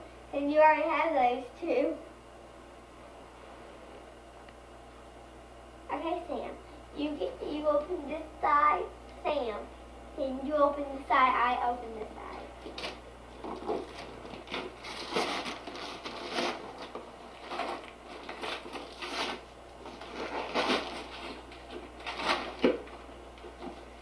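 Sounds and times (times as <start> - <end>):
wrapping paper tearing and crinkling: 12.6 - 23.8
sharp paper rip: 14.4 - 16.8, 17.4 - 19.4.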